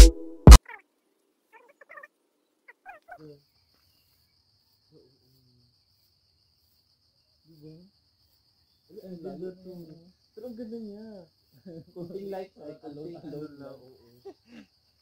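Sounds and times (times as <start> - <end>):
background music with a beat: 0.0 - 0.6
faint chirps: 0.6 - 15.0
high insect trill: 1.5 - 15.0.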